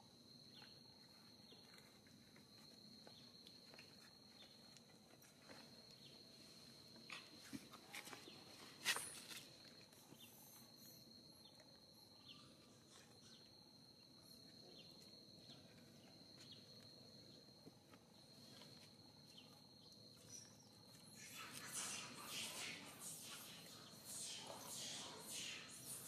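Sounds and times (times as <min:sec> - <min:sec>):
high-pitched insect drone: 0:18.4 - 0:26.0.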